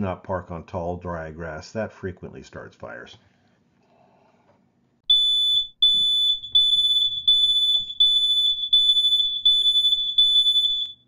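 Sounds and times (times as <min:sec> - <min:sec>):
smoke alarm beeping: 0:05.1 - 0:11.0.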